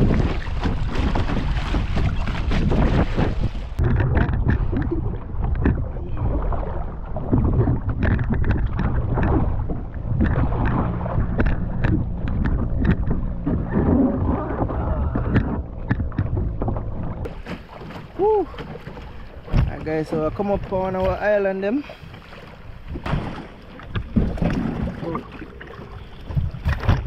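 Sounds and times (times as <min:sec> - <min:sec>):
low rumble: 0:00.0 - 0:17.5
paddle dipping and splashing: 0:00.0 - 0:27.0
water lapping against kayak hull: 0:00.0 - 0:27.0.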